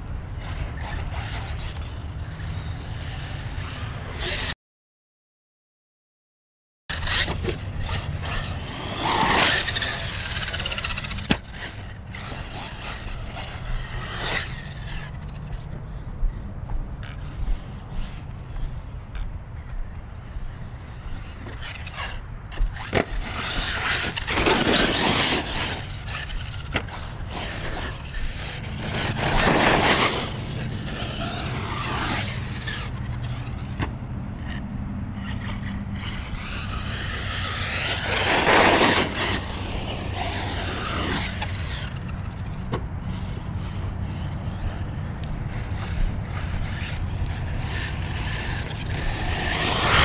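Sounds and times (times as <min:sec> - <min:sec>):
dirt crunching under tyres: 0:06.9 - 0:50.0
electric motor whining: 0:34.4 - 0:50.0.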